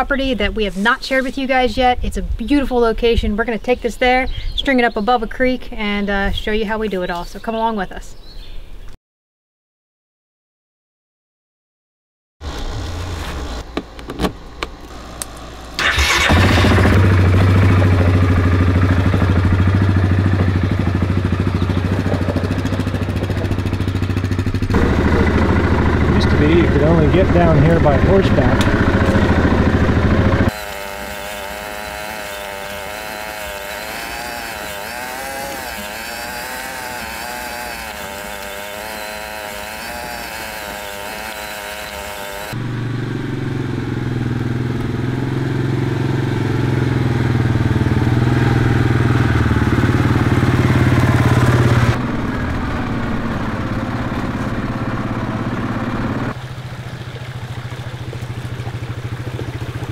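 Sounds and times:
atv engine running: 12.4 - 59.9.

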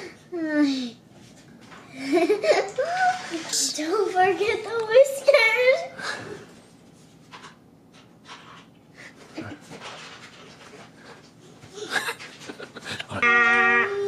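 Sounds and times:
girl laughing: 2.0 - 3.2, 11.7 - 14.0.

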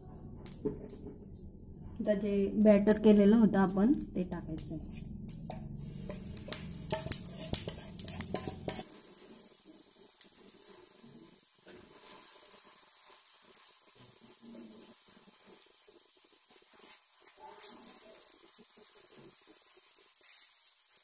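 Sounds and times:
low hum: 0.0 - 8.8
batter sizzling in hot oil: 4.6 - 21.0.

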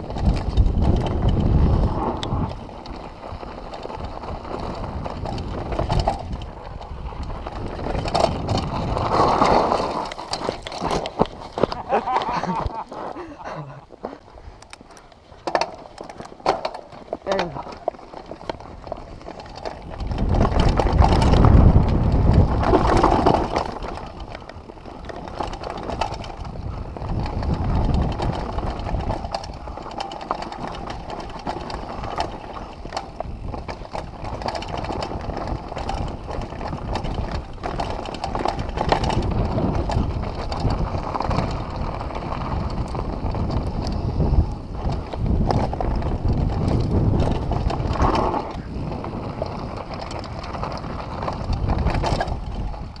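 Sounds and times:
wind on microphone: 0.0 - 12.8, 18.6 - 53.0
tyres rumbling on dirt: 0.0 - 14.3, 15.3 - 53.0
bike rattling over bumps: 0.0 - 53.0.

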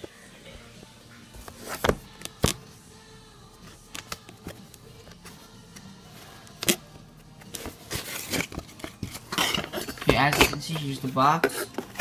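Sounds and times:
paper and cardboard rustling: 1.4 - 2.1, 7.4 - 12.0.

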